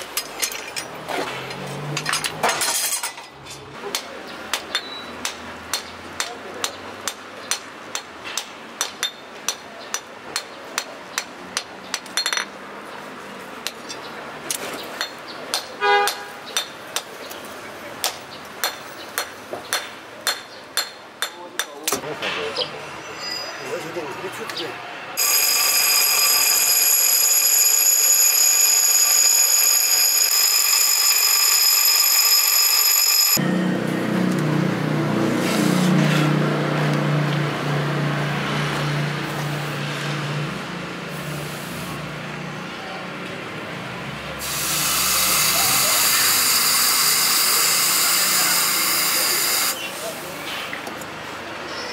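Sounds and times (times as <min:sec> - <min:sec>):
bench grinder grinding steel: 0:25.2 - 0:33.4, 0:44.4 - 0:49.8.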